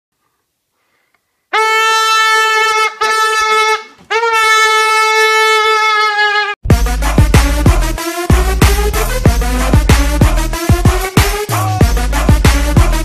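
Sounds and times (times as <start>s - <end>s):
balloon squealing: 1.6s - 6.6s.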